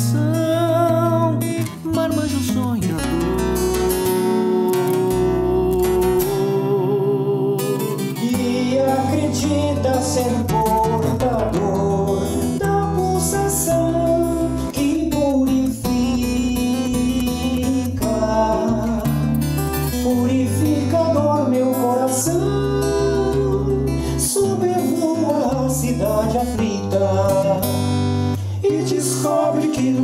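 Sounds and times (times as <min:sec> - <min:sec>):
acoustic guitar: 0:00.0 - 0:30.0
man singing: 0:00.0 - 0:30.0.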